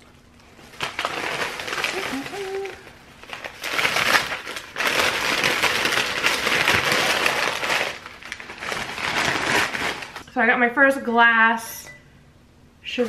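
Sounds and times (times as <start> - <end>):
paper wrapping crinkling: 0.4 - 10.2.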